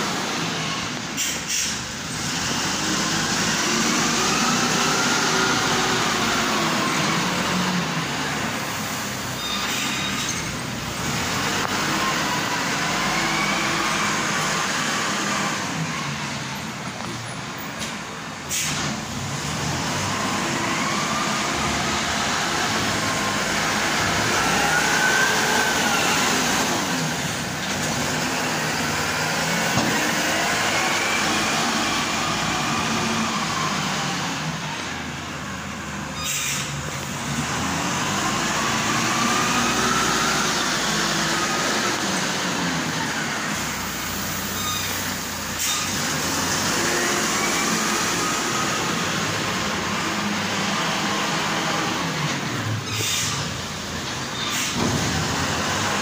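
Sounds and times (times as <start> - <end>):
wheel loader engine: 0.0 - 56.0.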